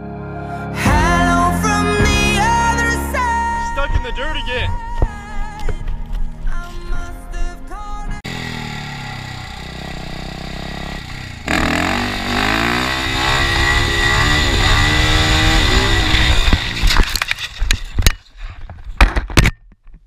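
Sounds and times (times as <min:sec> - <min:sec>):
dirt bike engine revving: 0:08.2 - 0:17.6
motorbike crashing on gravel: 0:10.5 - 0:18.3.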